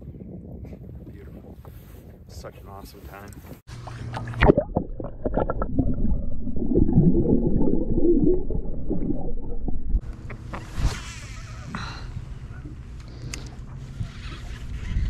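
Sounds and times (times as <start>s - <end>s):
muffled water gurgling and sloshing: 3.4s - 15.0s.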